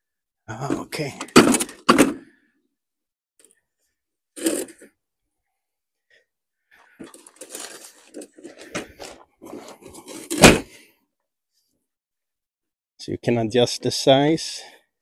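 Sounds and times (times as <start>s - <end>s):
folding table rattle: 0.7s - 2.2s.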